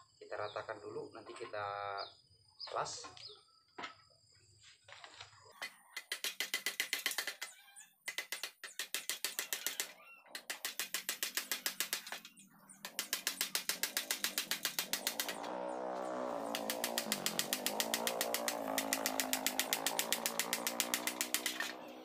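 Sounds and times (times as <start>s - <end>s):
hammer tapping steel pipe: 6.0s - 7.5s, 8.1s - 15.4s, 16.5s - 21.8s.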